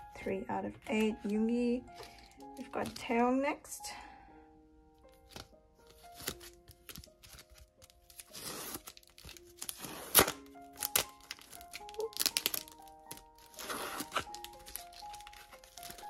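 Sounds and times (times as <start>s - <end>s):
soft background music: 0.0s - 16.0s
plastic packaging crinkling: 5.0s - 16.0s.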